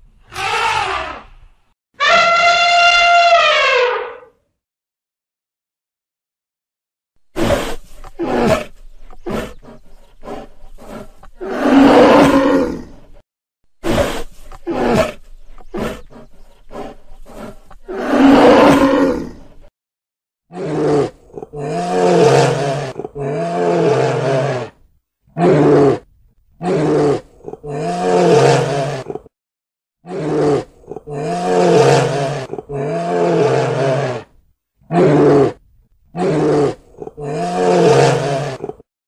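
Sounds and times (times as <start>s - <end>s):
bears roaring: 7.4s - 13.1s, 13.8s - 19.6s, 20.5s - 24.7s, 26.6s - 29.3s, 30.1s - 34.3s, 36.2s - 38.9s.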